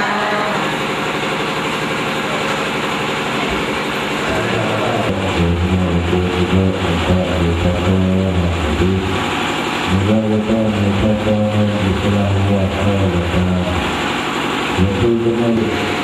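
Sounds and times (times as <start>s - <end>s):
deep voice holding long notes: 0.0s - 0.8s, 4.2s - 9.2s, 9.8s - 14.0s, 14.8s - 16.0s
monks chanting over loudspeaker: 0.0s - 0.8s, 4.2s - 9.2s, 9.9s - 13.9s.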